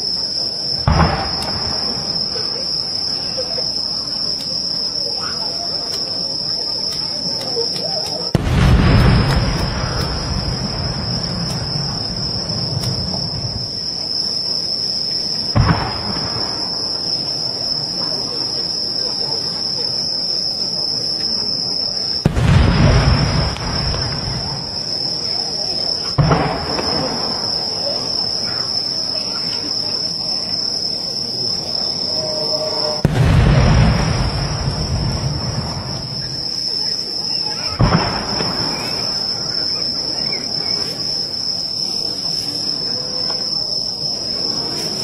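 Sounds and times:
crickets chirring: 0.0 - 45.0
firework shells booming: 0.8 - 2.8, 8.3 - 13.8, 15.5 - 17.2, 22.2 - 30.0, 32.0 - 36.7, 37.6 - 40.6.

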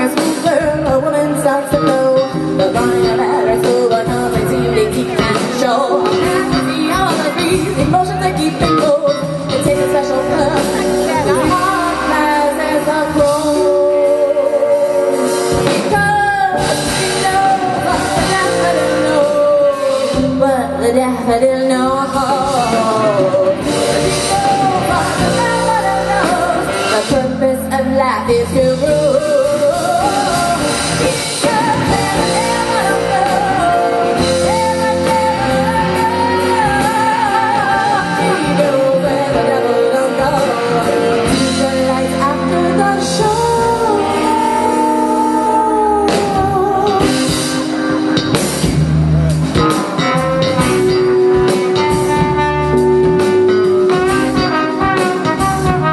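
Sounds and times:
woman singing: 0.0 - 48.3
live rock band playing: 0.0 - 55.9
trombone: 49.6 - 55.9.

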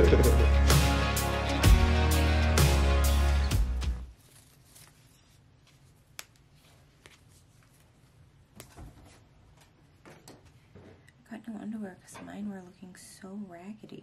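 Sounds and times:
background music with beat: 0.0 - 4.1
fabric rustling: 4.1 - 9.9.

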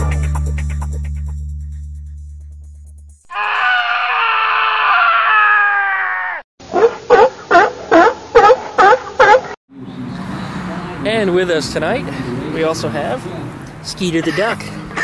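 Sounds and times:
music: 0.0 - 3.3
long high-pitched cry: 3.3 - 6.4.

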